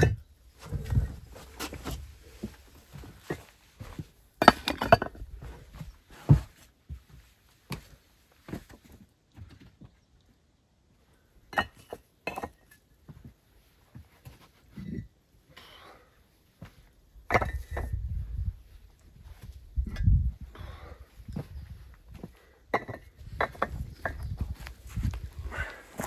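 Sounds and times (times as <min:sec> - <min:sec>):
bricks knocking together: 0:04.4 - 0:05.4, 0:17.3 - 0:18.0, 0:22.7 - 0:24.4.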